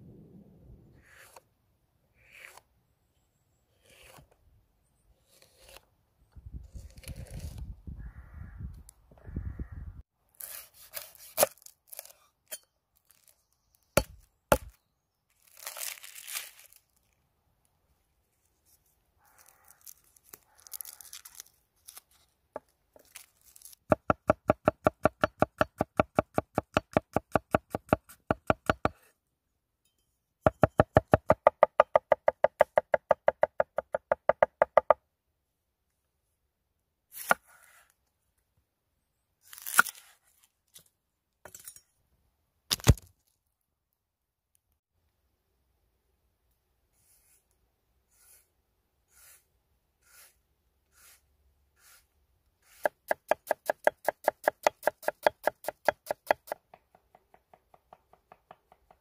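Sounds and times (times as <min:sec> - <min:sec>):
garlic skin tearing: 0:19.3 - 0:22.1.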